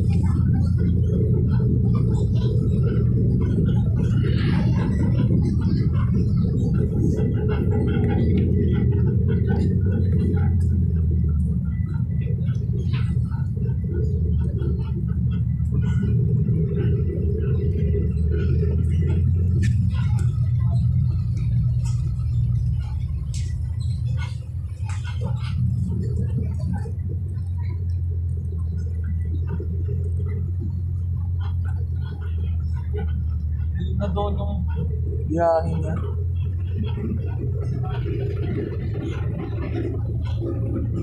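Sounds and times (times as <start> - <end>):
bus engine and road rumble: 0.0 - 41.0.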